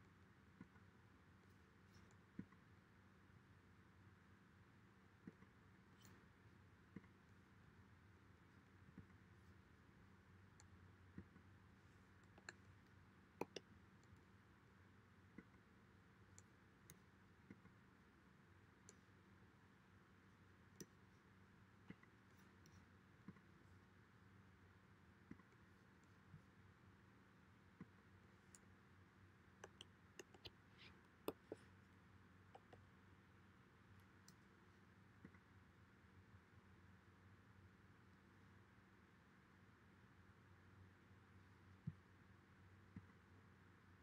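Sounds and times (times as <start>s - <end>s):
low steady hum: 0.0s - 44.0s
computer mouse clicks: 12.2s - 12.7s, 13.4s - 14.3s, 25.3s - 26.1s, 29.6s - 31.7s, 32.5s - 32.9s.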